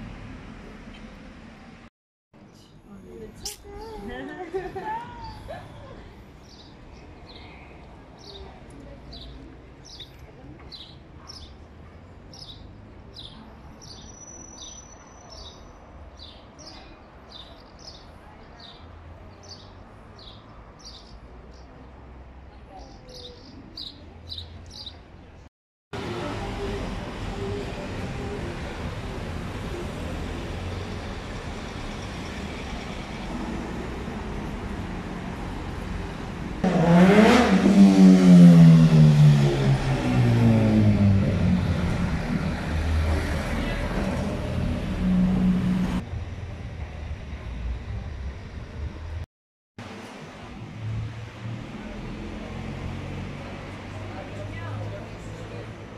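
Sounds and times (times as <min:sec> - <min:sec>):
minibus engine driving past: 0:26.0 - 0:49.2.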